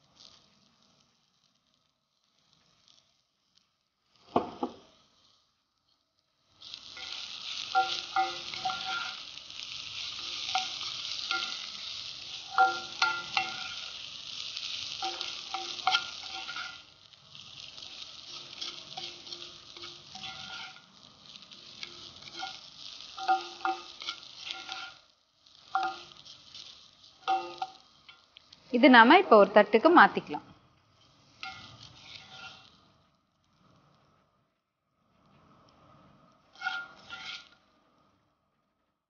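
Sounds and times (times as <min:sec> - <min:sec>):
food sizzling in oil: 0:00.0 - 0:34.1, 0:35.2 - 0:38.2
spatula knocking iron pan: 0:23.2 - 0:24.9, 0:25.8 - 0:26.2, 0:27.3 - 0:27.8.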